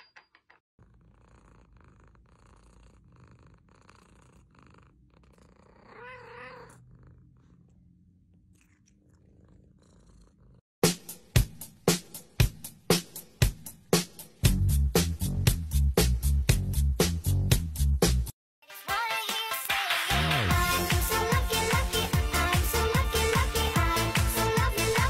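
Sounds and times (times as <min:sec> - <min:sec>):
cat purring: 0:00.8 - 0:10.6
cat mewing: 0:05.7 - 0:06.8
music with hard beat: 0:10.8 - 0:18.2.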